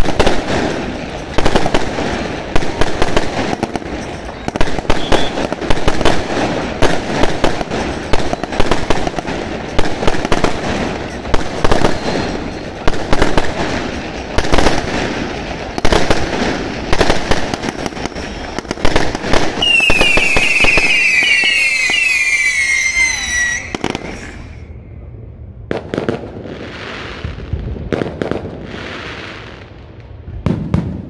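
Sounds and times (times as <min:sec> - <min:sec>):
fireworks bursting: 0:00.0 - 0:24.8, 0:25.6 - 0:31.0
hissing of rising shells: 0:19.6 - 0:24.6
shrill descending whistles: 0:19.6 - 0:24.8.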